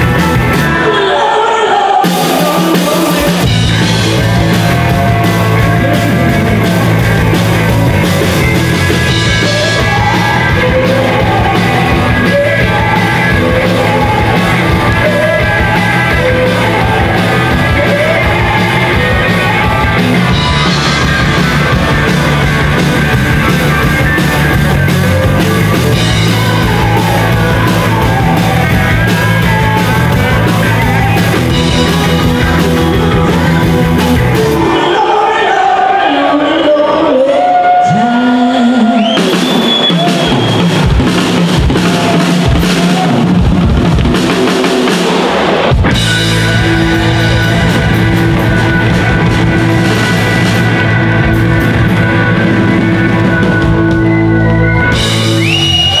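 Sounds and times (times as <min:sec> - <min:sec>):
live rock band playing: 0:00.0 - 0:56.0
woman singing: 0:00.6 - 0:03.5.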